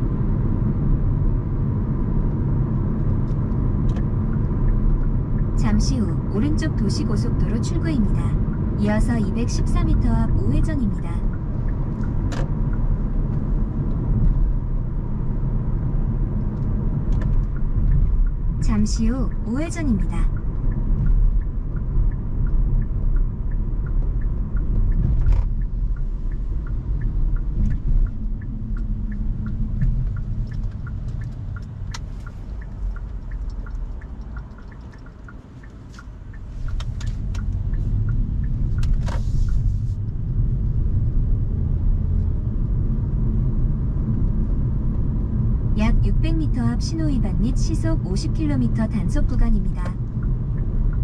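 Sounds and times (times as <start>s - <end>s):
car cabin road rumble: 0.0s - 51.0s
turn signal ticking: 0.2s - 51.0s.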